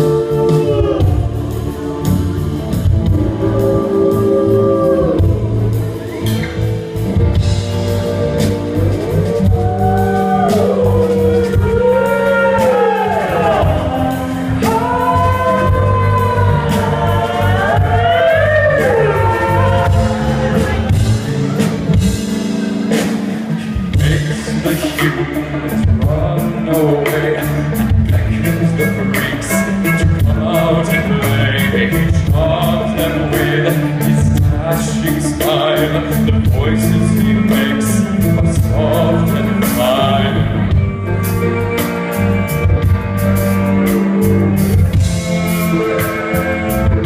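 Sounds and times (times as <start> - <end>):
person singing: 0.0 - 40.8
live band playing: 0.0 - 47.0.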